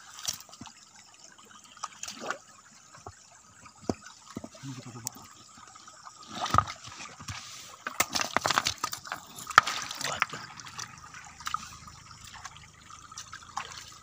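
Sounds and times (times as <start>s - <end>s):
water trickling: 0.0s - 14.0s
stones clacking together: 6.4s - 11.6s.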